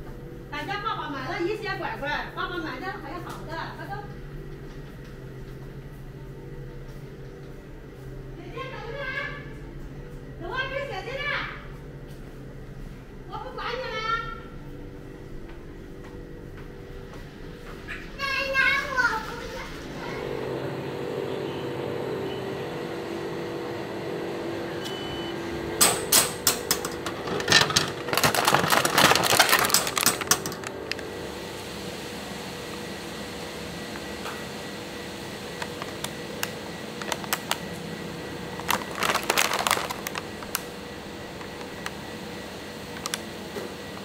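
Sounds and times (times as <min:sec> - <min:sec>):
machine hum: 0:00.0 - 0:44.0.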